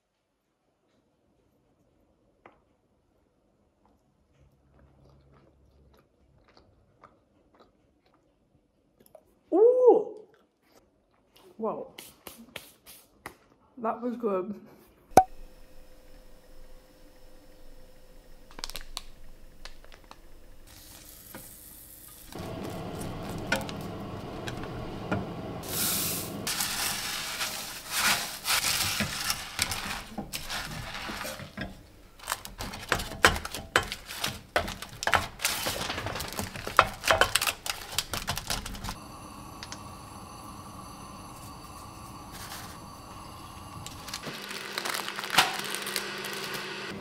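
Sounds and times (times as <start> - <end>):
puffed rice poured into saucepan: 20.6 - 23.9, 25.6 - 31.6
utensil clicking and scraping pot: 26.5 - 35.7
faint steady hum: 38.9 - 45.1.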